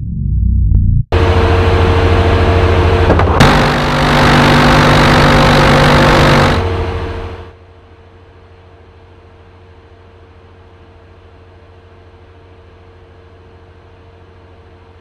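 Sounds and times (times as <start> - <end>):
machinery rushing noise: 1.1 - 7.6
rotary cannon firing: 3.0 - 7.1.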